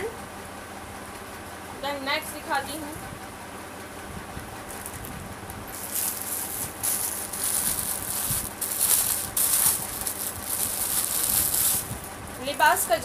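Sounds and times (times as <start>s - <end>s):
clothes rustling and crinkling: 4.7s - 13.0s.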